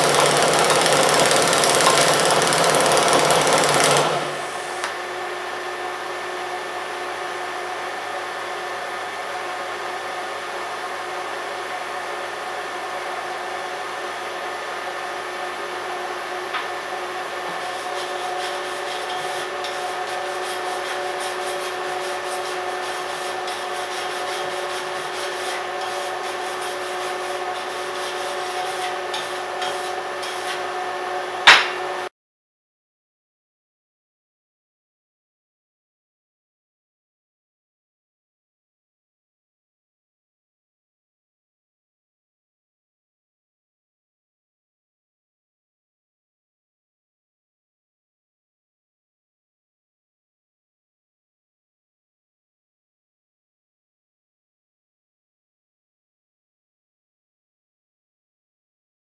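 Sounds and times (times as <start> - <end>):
wire brush scrubbing metal: 17.6 - 30.6.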